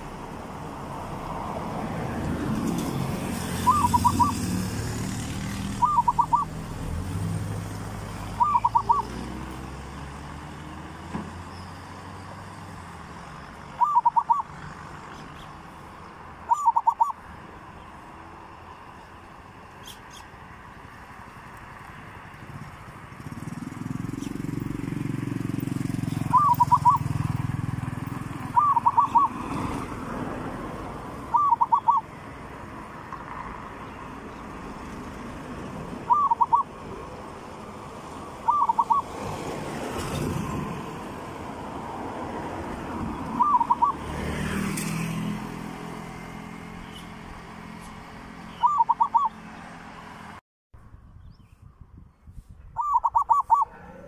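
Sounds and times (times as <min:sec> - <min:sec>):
dove cooing: 0:03.5 - 0:04.5, 0:05.7 - 0:06.6, 0:08.3 - 0:09.2, 0:13.8 - 0:14.6, 0:16.5 - 0:17.2, 0:26.0 - 0:27.2, 0:28.4 - 0:29.5, 0:31.3 - 0:32.1, 0:36.0 - 0:36.8, 0:38.4 - 0:39.2, 0:43.3 - 0:44.1, 0:48.6 - 0:49.4, 0:52.8 - 0:54.0.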